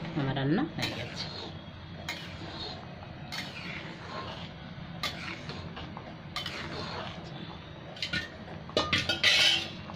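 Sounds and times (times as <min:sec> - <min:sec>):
steady low hum: 0:00.0 - 0:09.9
metal spatula stirring in a pan: 0:00.8 - 0:09.9
metal clinks and scrapes on pan: 0:08.0 - 0:09.8.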